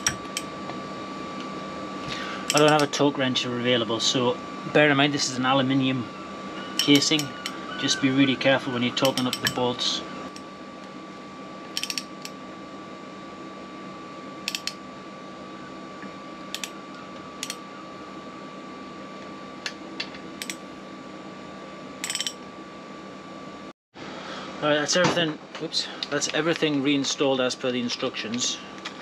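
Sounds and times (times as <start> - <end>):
faint steady hum: 0.0 - 29.0
ratchet wrench clicking: 11.8 - 12.3, 14.5 - 14.7.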